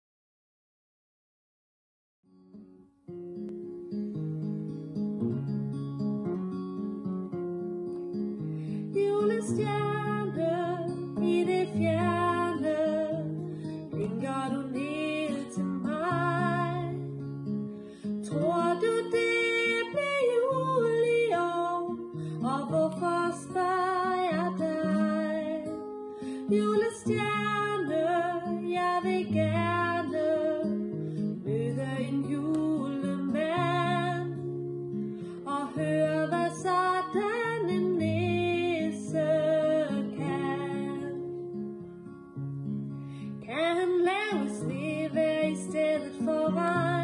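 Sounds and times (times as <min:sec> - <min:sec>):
acoustic guitar: 0:02.3 - 0:47.0
woman singing a slow song: 0:08.8 - 0:17.2, 0:18.2 - 0:41.6, 0:43.2 - 0:47.0.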